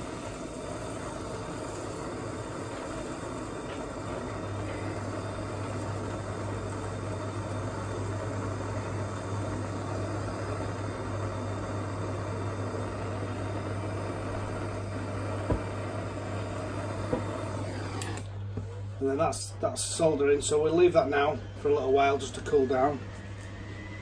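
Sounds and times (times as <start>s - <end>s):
blow lamp flame rushing: 0.0s - 18.4s.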